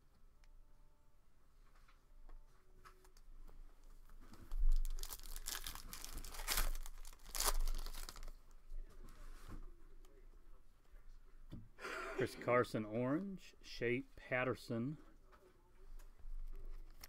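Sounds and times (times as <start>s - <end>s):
foil wrapper tearing and crinkling: 4.7s - 8.4s.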